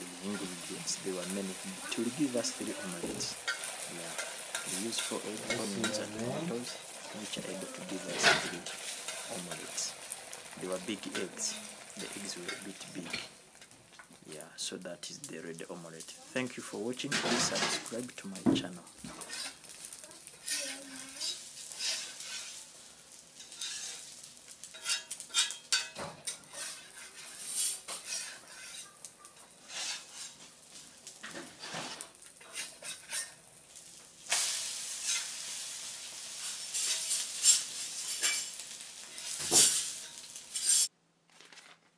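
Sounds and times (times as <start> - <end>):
omelette frying in a pan: 0.0 - 40.9
utensil scraping a pan: 0.2 - 10.1, 19.1 - 19.7, 20.3 - 22.7, 23.4 - 29.0, 29.6 - 30.6, 31.2 - 33.4, 34.3 - 35.7, 36.3 - 40.9.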